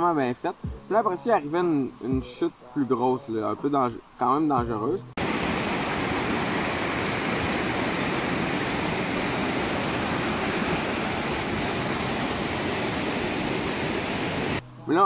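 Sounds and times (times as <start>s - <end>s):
water rushing over rocks: 5.2s - 14.6s.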